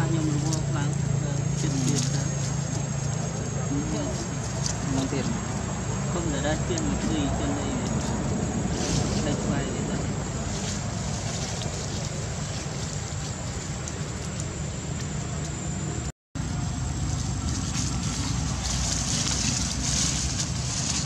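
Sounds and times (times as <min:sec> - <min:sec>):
low rumble with hiss: 0:00.0 - 0:21.0.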